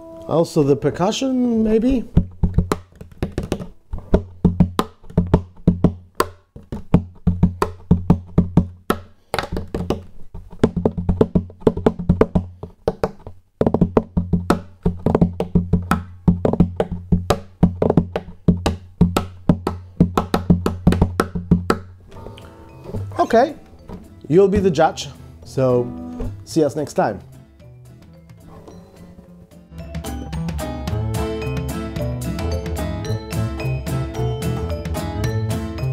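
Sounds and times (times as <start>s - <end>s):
hand tapping on guitar body: 1.9s - 21.9s.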